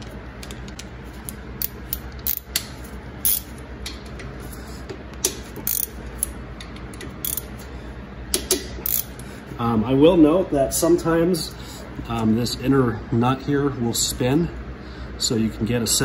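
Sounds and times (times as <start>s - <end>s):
ratchet and wrench clicking: 1.6s - 3.5s, 5.2s - 7.5s, 8.4s - 9.1s.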